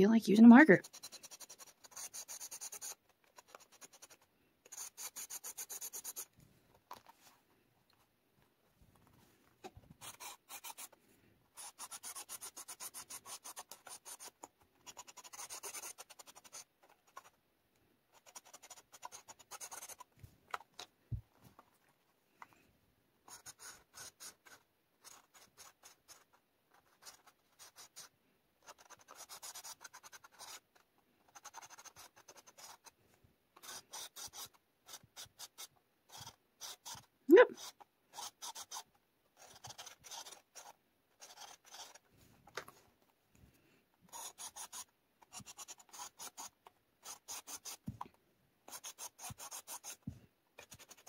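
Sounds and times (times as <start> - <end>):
marker scribbling on paper: 0.1 - 6.3, 9.9 - 17.4, 18.1 - 20.1, 23.3 - 33.0, 33.6 - 42.0, 44.1 - 48.0, 48.7 - 51.0.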